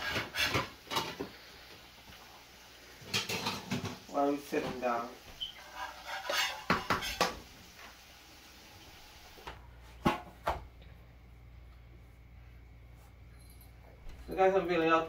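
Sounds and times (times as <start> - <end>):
metal spoon scraping a frying pan: 0.0 - 1.2, 5.4 - 7.4.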